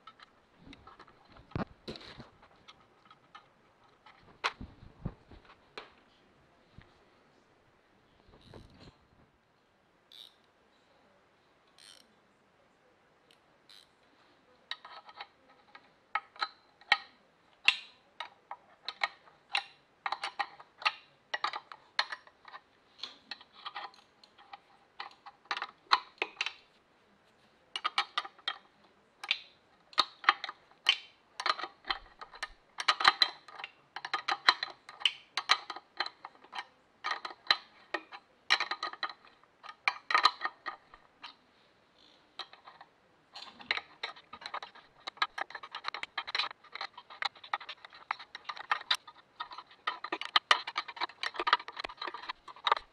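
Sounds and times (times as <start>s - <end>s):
ratcheting wrench clicking: 11.8s - 12.0s.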